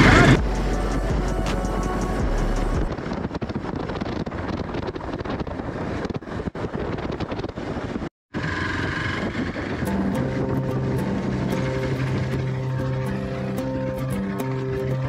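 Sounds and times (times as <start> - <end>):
wind rush on microphone: 0.0 - 15.0
motorcycle engine running: 8.4 - 15.0.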